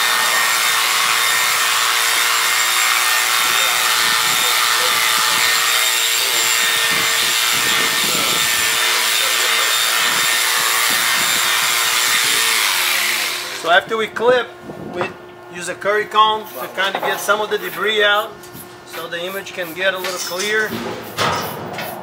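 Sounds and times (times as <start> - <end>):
electric clippers buzzing: 0.0 - 13.7.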